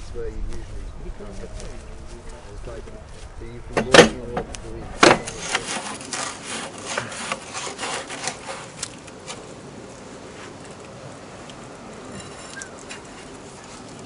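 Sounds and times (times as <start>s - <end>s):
metal scrapes and knocks: 3.7s - 8.8s.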